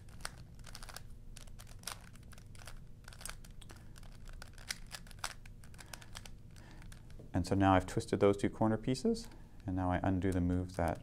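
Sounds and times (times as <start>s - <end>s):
puzzle cube clicking: 0.0s - 7.2s.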